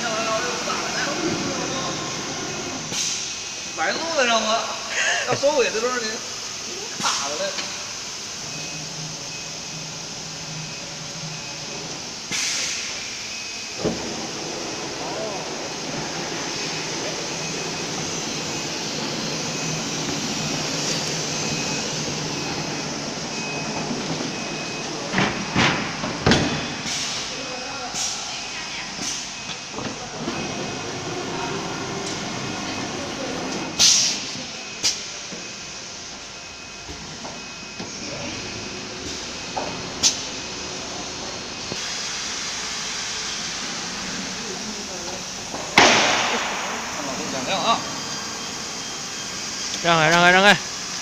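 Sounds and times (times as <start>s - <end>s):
woodworking router machinery: 0.0s - 2.9s, 29.9s - 33.8s
pneumatic air burst: 2.8s - 3.3s, 12.3s - 13.2s, 26.8s - 27.3s, 33.8s - 35.1s
faint high beep: 16.5s - 25.6s.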